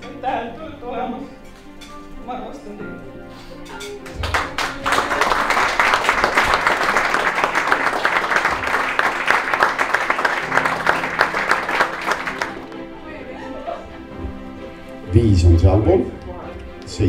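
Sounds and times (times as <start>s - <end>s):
crowd applauding: 4.0s - 14.1s.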